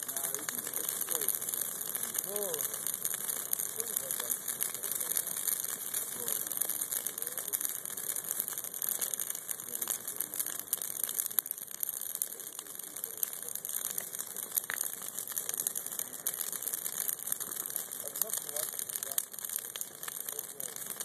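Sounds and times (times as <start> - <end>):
branches crackling and popping: 0.0 - 21.0
flames hissing: 0.0 - 21.0.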